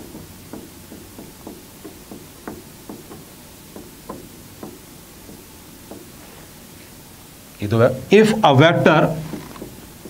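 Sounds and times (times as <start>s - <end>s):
marker tapping on whiteboard: 0.0s - 6.2s, 9.0s - 10.0s.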